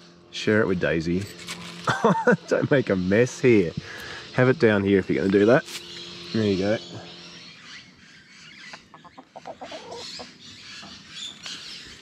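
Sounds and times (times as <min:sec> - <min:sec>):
hen clucking: 0:07.9 - 0:12.0.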